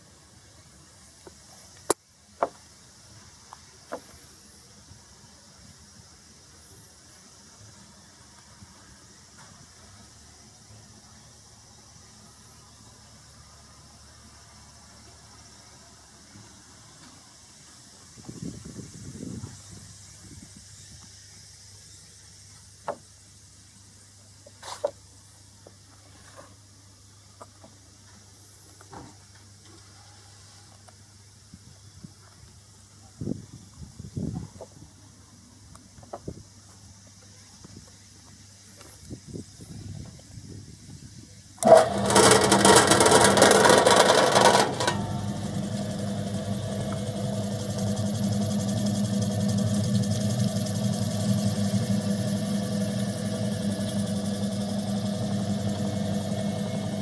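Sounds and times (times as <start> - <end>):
machine rattling clatter: 41.6 - 52.1
steady machine hum: 41.6 - 57.0.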